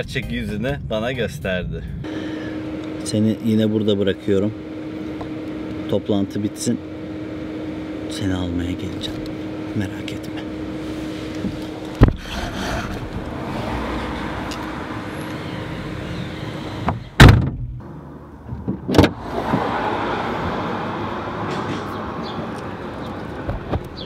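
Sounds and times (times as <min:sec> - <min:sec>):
street noise: 0:00.0 - 0:24.0
car boot lid thump: 0:12.0 - 0:12.3, 0:16.8 - 0:17.8.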